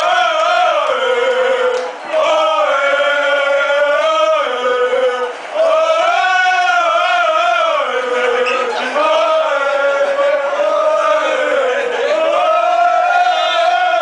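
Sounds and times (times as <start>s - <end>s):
men chanting in unison: 0.0s - 14.0s.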